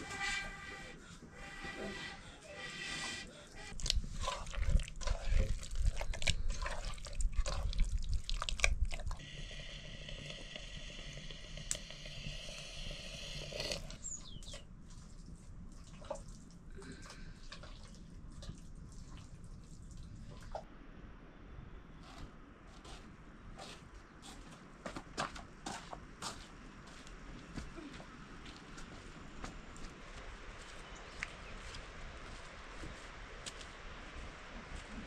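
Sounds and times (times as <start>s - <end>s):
water splashing and pouring: 14.8s - 20.6s.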